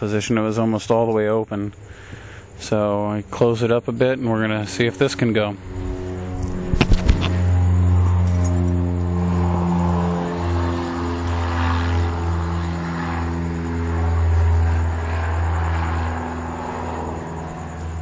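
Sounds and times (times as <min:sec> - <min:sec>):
generator engine running: 0:04.5 - 0:15.0.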